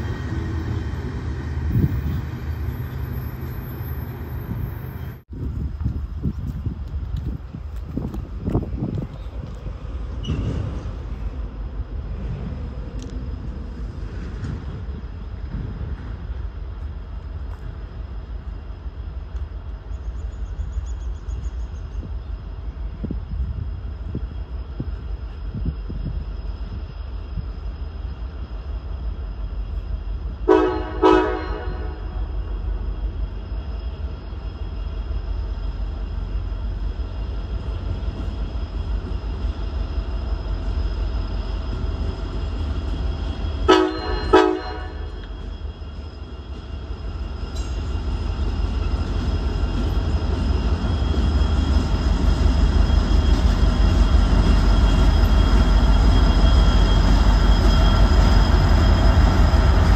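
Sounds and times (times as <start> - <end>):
train rumbling: 0.0 - 59.9
train horn blasts: 30.4 - 32.3, 43.6 - 45.3.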